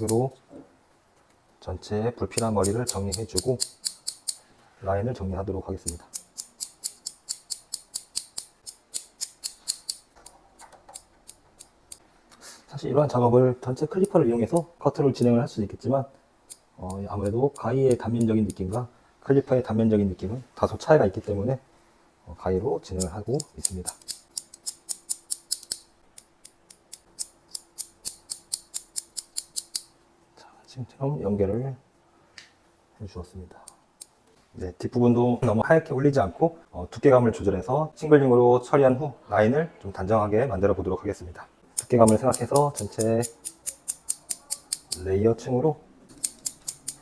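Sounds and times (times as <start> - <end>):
shears snipping hair: 2.3 - 4.4, 5.8 - 10.0, 23.0 - 25.8, 41.8 - 45.1, 46.1 - 47.0.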